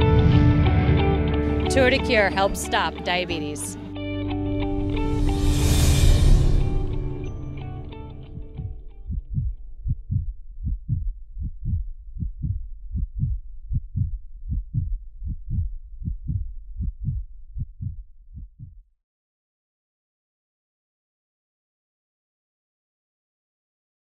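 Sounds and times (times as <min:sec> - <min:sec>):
heartbeat thumps: 0:07.8 - 0:18.9.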